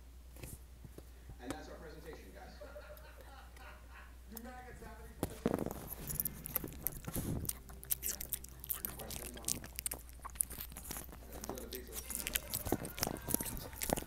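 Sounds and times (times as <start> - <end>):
dog chewing food: 5.2 - 14.0.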